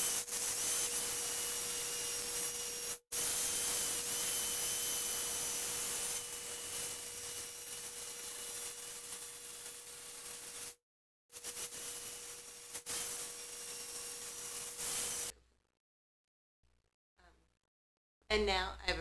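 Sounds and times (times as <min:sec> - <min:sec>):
electric knife cutting foam: 0:00.0 - 0:15.3.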